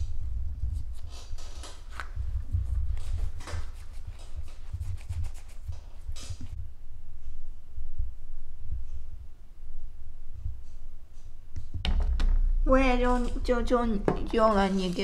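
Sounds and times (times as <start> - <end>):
hands rubbing dough: 0.0 - 6.6.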